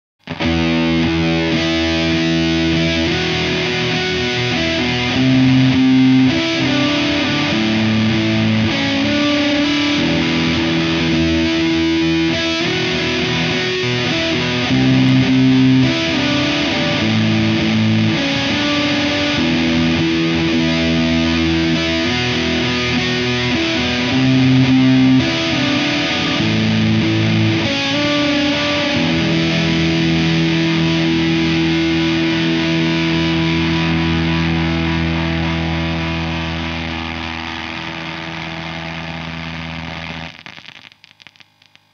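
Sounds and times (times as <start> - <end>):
distorted electric guitar riff: 0.2 - 41.9.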